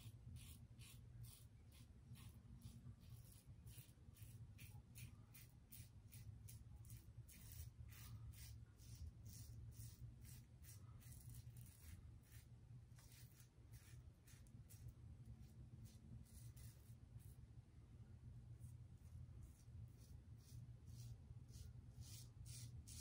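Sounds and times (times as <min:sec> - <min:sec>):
razor scratching stubble: 0:00.4 - 0:14.9.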